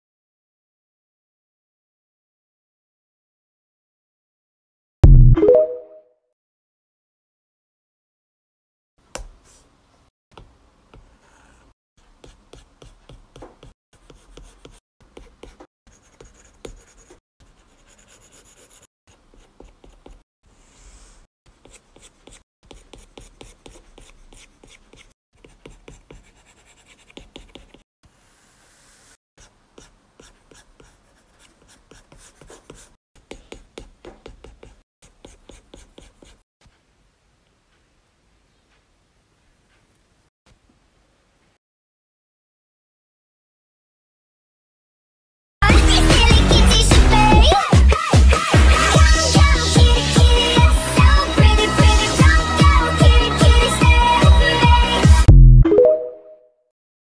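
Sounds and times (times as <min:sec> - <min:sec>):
stylus scratching on tablet screen: 0:10.9 - 0:36.8.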